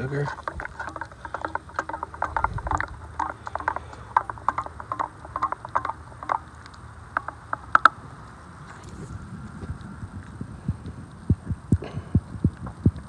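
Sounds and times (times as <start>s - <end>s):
spoon stirring in metal cup: 0.0s - 6.4s.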